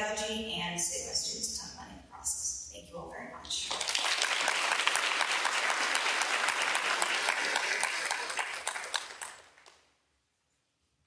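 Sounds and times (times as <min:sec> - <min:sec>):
audience applauding: 0:03.6 - 0:09.8.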